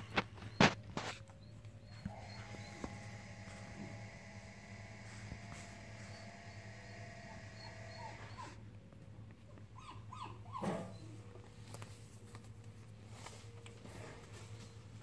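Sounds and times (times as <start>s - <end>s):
dog whining: 0.0s - 3.0s, 6.0s - 8.7s, 9.5s - 11.5s
steady low hum: 0.0s - 10.2s.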